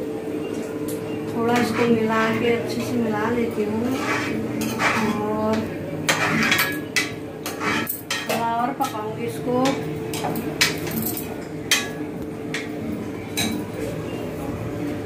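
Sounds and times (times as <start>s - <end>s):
ladle scraping metal pan: 3.8s - 5.3s, 6.1s - 6.8s, 7.4s - 8.1s.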